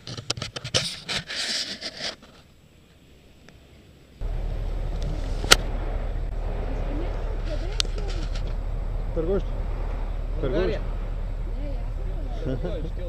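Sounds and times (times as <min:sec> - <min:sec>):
microphone handling scrapes: 0:00.0 - 0:02.5
steady low rumble: 0:04.1 - 0:13.0.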